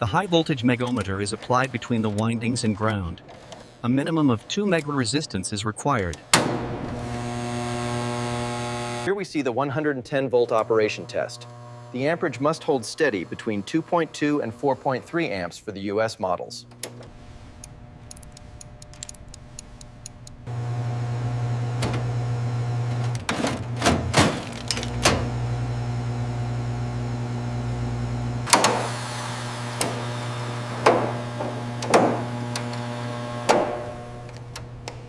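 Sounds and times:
refrigerator compressor hum: 10.4s - 35.0s
clicks and clunks: 16.7s - 20.5s, 22.9s - 25.4s, 28.5s - 29.0s, 29.7s - 35.0s.

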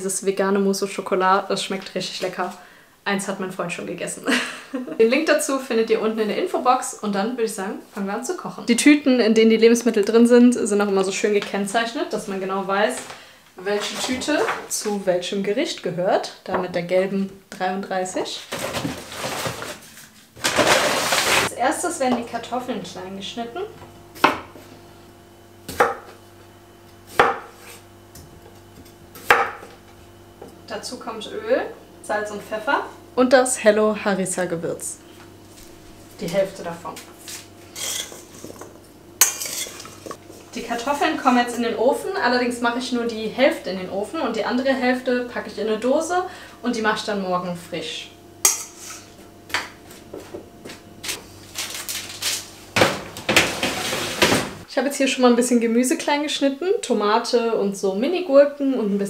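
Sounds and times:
faint steady hum: 0.0s - 59.0s
metal spoon scraping metal bowl: 37.7s - 38.6s, 39.2s - 40.2s, 48.5s - 49.2s.

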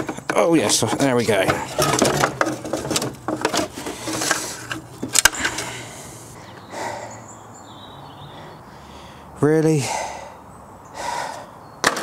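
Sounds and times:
metal and plastic rattling and scraping: 0.0s - 5.9s.

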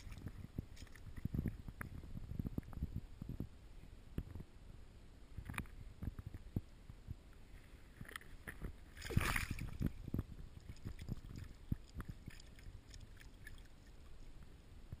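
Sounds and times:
water sloshing: 8.9s - 14.4s
fish splashing water: 9.0s - 10.0s, 10.6s - 14.2s.

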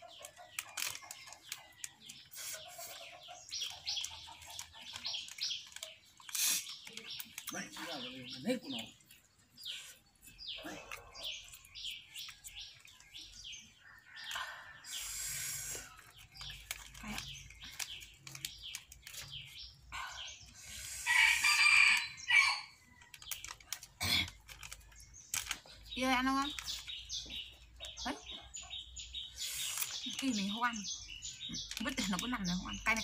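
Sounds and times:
rooster crowing: 21.1s - 22.8s.

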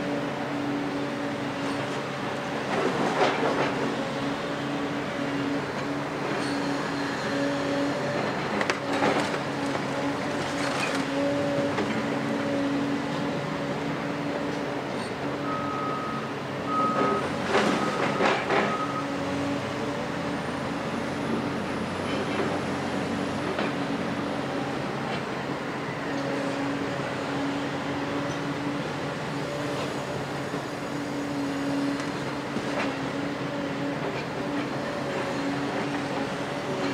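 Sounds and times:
excavator diesel engine running: 0.0s - 36.9s
reversing alarm beeping: 15.4s - 19.2s.

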